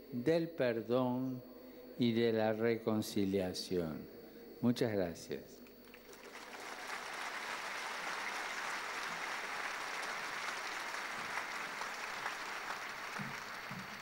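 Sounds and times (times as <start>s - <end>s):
crowd applauding: 5.8s - 14.0s.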